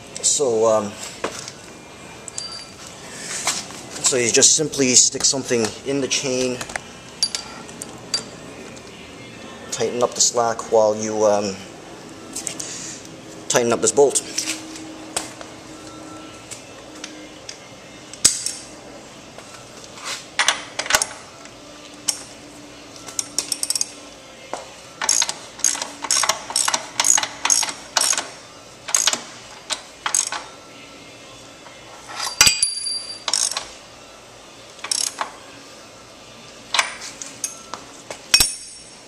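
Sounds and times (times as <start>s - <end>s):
metal-on-metal clink: 2.3s - 2.8s, 7.2s - 8.3s, 32.2s - 33.6s, 38.3s - 39.0s
socket wrench ratchet clicks: 25.0s - 28.3s, 28.9s - 29.2s, 30.1s - 30.4s, 33.3s - 33.7s, 34.8s - 35.2s.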